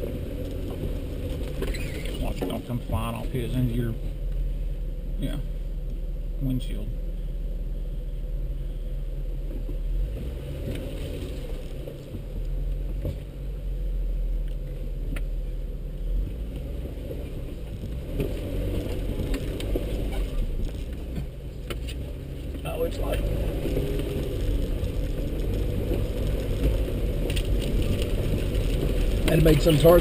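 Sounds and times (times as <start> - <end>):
vehicle engine rumble: 0.0 - 30.0
knocks and rattles over stones: 23.5 - 30.0.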